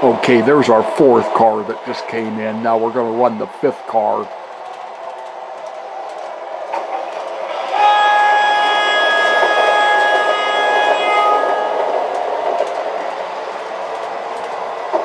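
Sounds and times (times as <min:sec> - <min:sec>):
multi-tone horn: 0:07.5 - 0:11.9.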